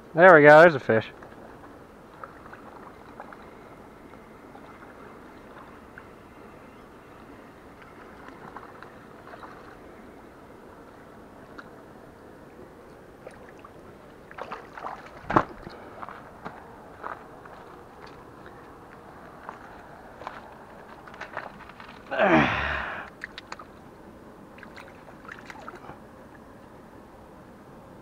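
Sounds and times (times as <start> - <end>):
lake water lapping: 1.2 - 11.8, 13.2 - 16.4, 19.2 - 22.2, 24.5 - 26.4.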